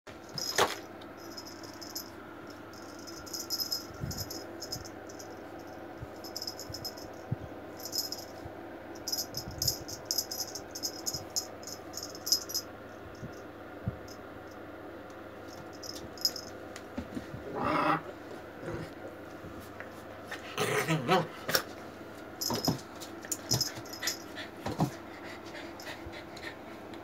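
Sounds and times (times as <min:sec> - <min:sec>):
light metallic jingling: 0:00.3 - 0:08.4, 0:09.0 - 0:13.4, 0:15.5 - 0:16.6.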